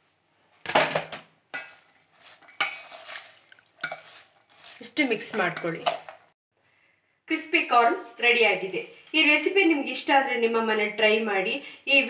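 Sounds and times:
spoon scraping steel bowl: 0:01.5 - 0:06.4.

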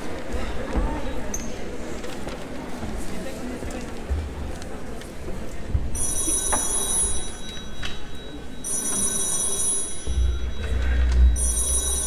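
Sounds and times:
audience murmur: 0:00.0 - 0:12.0
electric bell ringing: 0:06.0 - 0:12.0.

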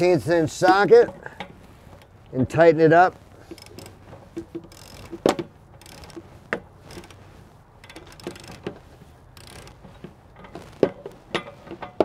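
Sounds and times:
metal clicks and knocks: 0:03.4 - 0:07.2, 0:07.8 - 0:08.8, 0:09.4 - 0:12.0
ratchet clicking: 0:03.5 - 0:07.2, 0:07.8 - 0:09.9.

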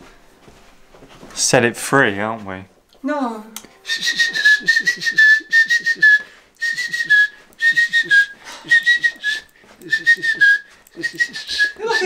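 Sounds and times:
chirping whistle imitating bird: 0:03.8 - 0:12.0.

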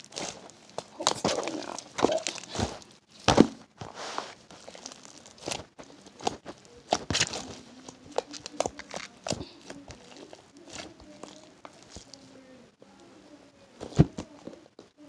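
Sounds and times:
slime kneaded clicking and popping: 0:06.2 - 0:12.2.

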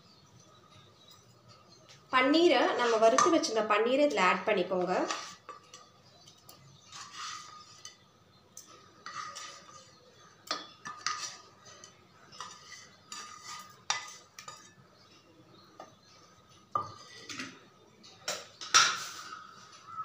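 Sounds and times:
wooden spatula scraping pan: 0:02.6 - 0:03.5, 0:04.7 - 0:05.9, 0:06.6 - 0:08.1, 0:09.0 - 0:10.0, 0:10.8 - 0:14.7
clinks and taps on metal: 0:10.4 - 0:11.2.

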